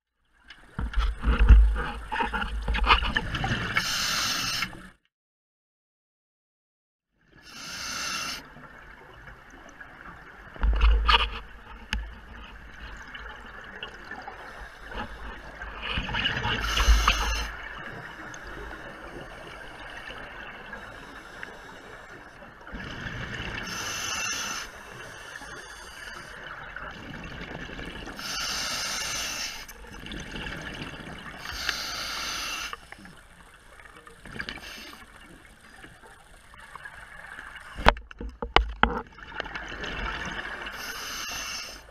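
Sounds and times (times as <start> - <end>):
diver breathing through regulator: 3.8 - 4.7, 7.4 - 8.4, 16.6 - 19.5, 28.2 - 29.7, 31.4 - 33.0, 40.7 - 41.9
steady hiss: 7.5 - 8.4, 23.4 - 26.4, 28.2 - 29.7, 31.3 - 35.9, 40.7 - 41.9
bubbles gurgling: 29.8 - 31.5.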